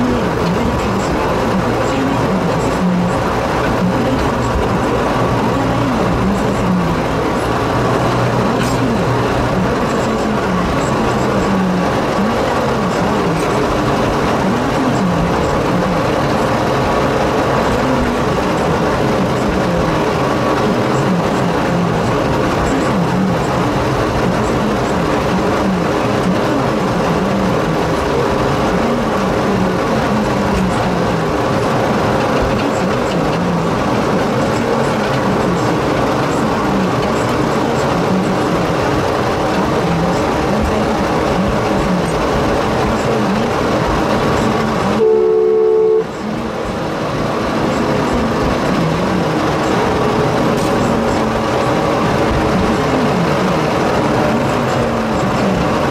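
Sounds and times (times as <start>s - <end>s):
locomotive engine low note: 0.0s - 55.9s.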